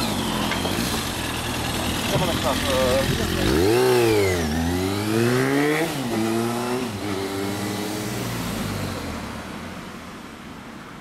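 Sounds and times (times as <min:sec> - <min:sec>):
motorcycle accelerating away: 0:00.0 - 0:09.7.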